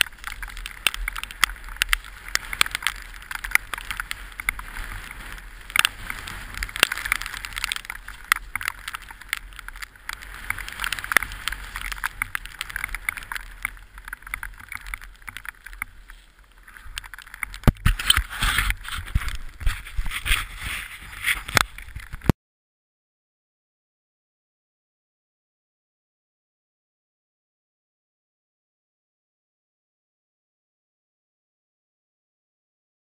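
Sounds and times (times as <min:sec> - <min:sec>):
bike scraping on gravel: 0:00.0 - 0:22.2
bike rattles and knocks: 0:00.0 - 0:22.3.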